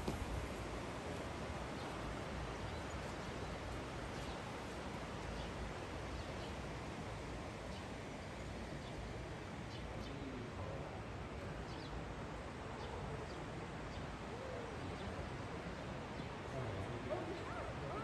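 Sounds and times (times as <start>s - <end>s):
outdoor background hiss: 0.0s - 18.0s.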